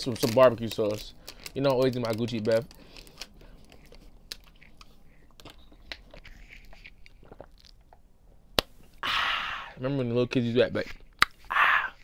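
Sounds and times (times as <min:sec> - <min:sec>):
plastic bottle crinkling: 0:00.0 - 0:08.0.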